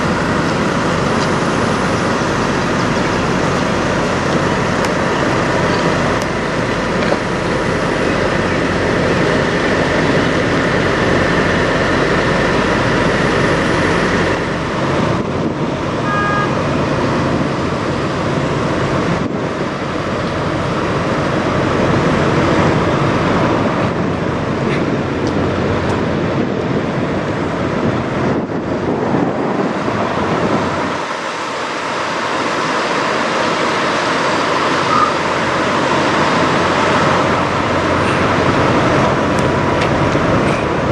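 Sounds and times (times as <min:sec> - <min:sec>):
diesel truck engines running: 0:00.0 - 0:40.9.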